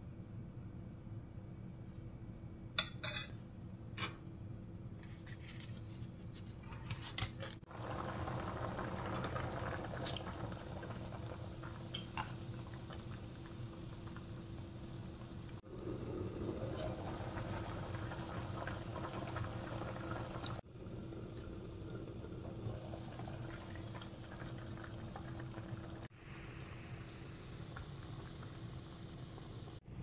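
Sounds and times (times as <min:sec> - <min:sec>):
soup bubbling at a boil: 0:07.6 - 0:29.9.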